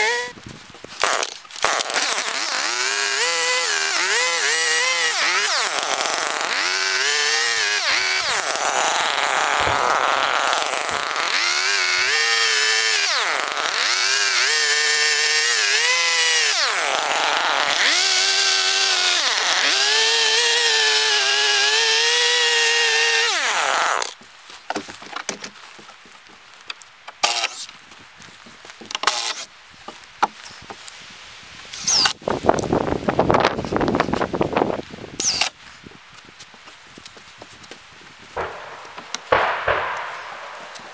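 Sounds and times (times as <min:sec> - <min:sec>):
chainsaw cutting wood: 0:00.0 - 0:24.2, 0:27.1 - 0:27.7, 0:28.9 - 0:29.5, 0:31.7 - 0:32.2, 0:35.2 - 0:35.6, 0:38.4 - 0:40.9.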